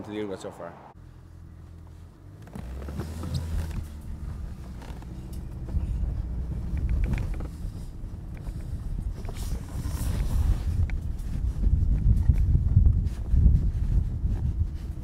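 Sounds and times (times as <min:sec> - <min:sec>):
wind rumbling on microphone: 0:03.1 - 0:15.0.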